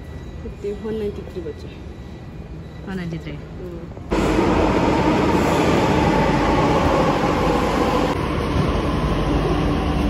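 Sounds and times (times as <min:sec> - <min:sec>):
metro train rumble and hum: 0:00.0 - 0:10.0.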